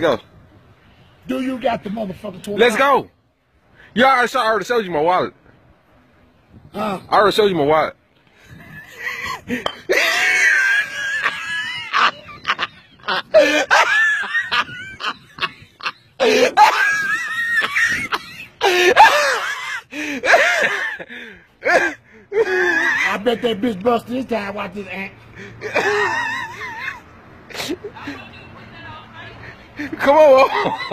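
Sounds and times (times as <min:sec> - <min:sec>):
people laughing and shrieking: 0:08.8 - 0:23.2, 0:25.6 - 0:27.0.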